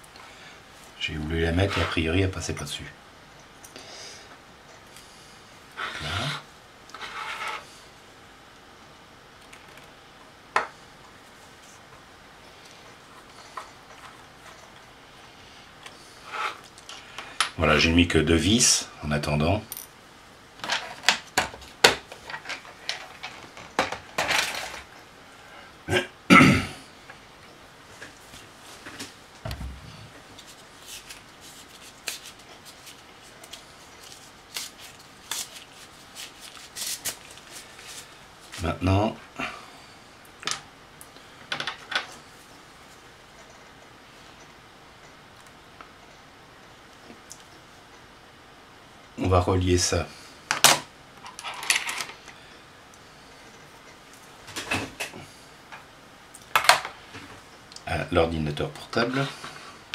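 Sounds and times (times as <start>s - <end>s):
hands rustling objects on desk: 27.9s - 38.7s.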